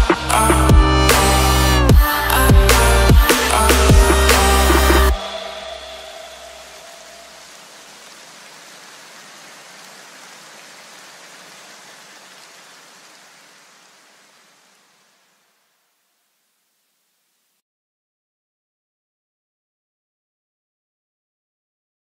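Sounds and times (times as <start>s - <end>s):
steady hiss: 2.7s - 17.6s.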